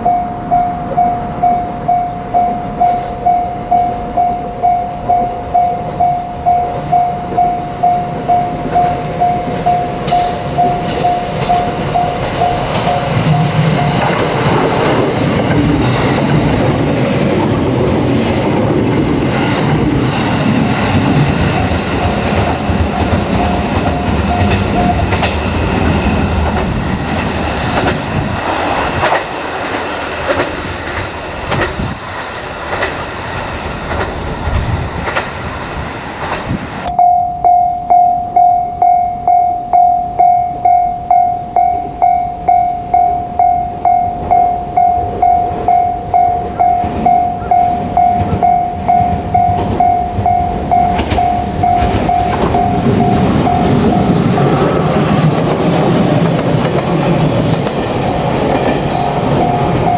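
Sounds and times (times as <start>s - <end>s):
level crossing warning bell: 0.0s - 26.4s, 36.9s - 59.9s
train wheels clattering over rail joints: 8.6s - 36.6s, 46.8s - 59.9s.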